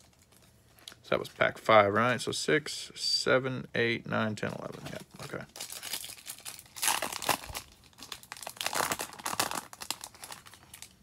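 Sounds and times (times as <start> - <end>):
foil wrapper tearing and crinkling: 0.0 - 0.5, 5.2 - 11.0.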